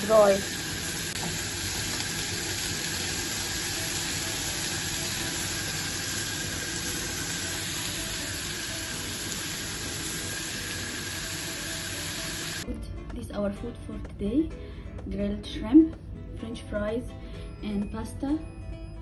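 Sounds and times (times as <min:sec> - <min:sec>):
shrimp sizzling on a grill pan: 0:00.0 - 0:12.6.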